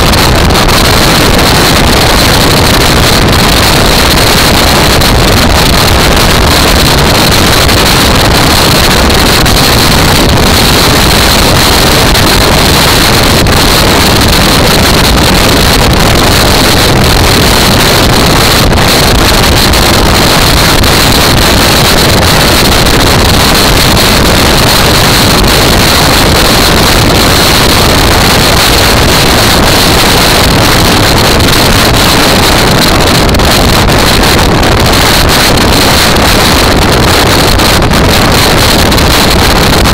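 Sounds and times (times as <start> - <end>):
wind noise on microphone: 0.0 - 39.9.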